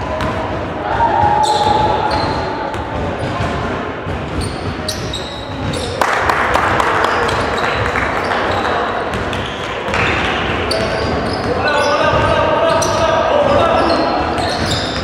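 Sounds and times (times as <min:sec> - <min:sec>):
sneakers squeaking: 0:00.0 - 0:06.0, 0:06.9 - 0:15.0
crowd and bench noise: 0:00.0 - 0:15.0
basketball bouncing on wooden floor: 0:01.2 - 0:06.0.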